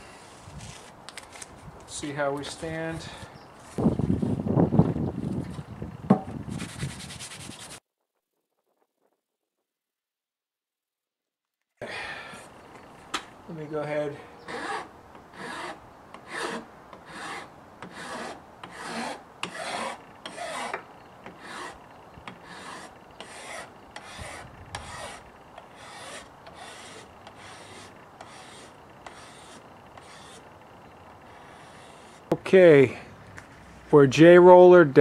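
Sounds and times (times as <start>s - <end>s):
hand file rasping on laminate: 14.4s - 30.4s, 31.3s - 32.3s.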